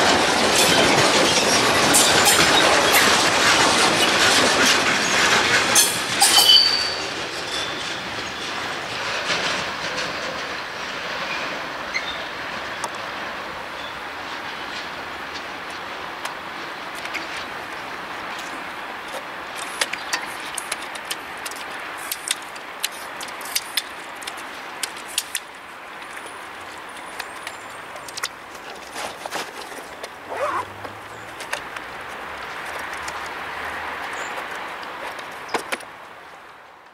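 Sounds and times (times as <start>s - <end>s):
freight train rumbling: 0.0s - 36.9s
wheel clicks over rail joints: 14.4s - 36.0s.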